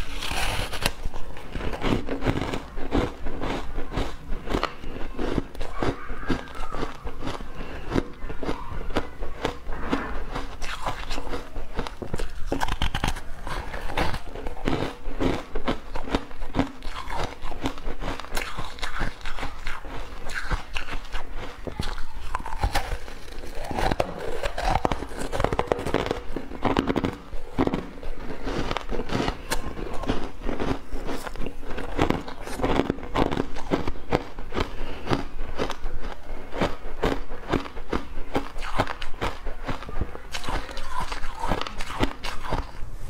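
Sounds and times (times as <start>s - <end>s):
ice crunched between teeth: 0.0s - 42.8s.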